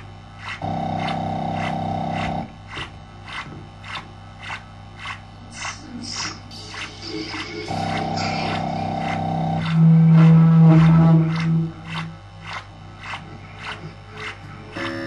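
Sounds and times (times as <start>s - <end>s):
low synthesizer drone: 0.0s - 15.0s
buzzing synth chord: 3.8s - 15.0s.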